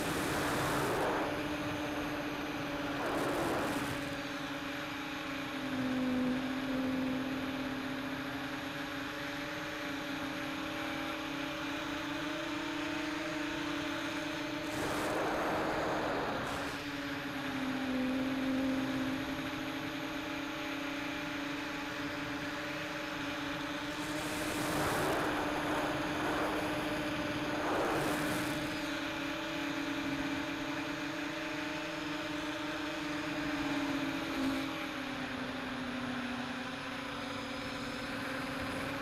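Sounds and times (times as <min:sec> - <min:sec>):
rushing air noise: 0:00.0 - 0:04.1, 0:14.6 - 0:16.8, 0:23.9 - 0:29.0
drone motors and propellers whining: 0:00.0 - 0:39.0.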